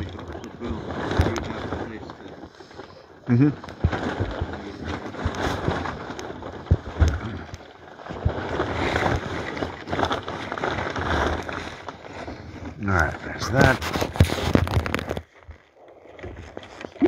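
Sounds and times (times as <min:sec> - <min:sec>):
oars knocking: 0:03.3 - 0:12.4
water gurgling around hull and oars: 0:03.6 - 0:12.8.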